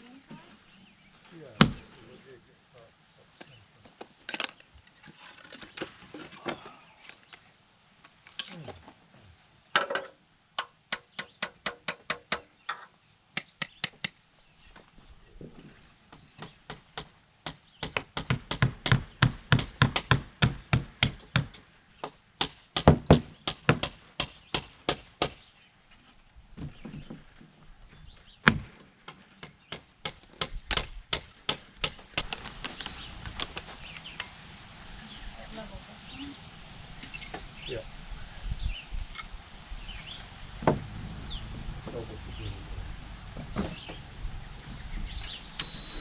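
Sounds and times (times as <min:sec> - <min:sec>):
hammer striking wooden door: 0:22.4 - 0:25.4.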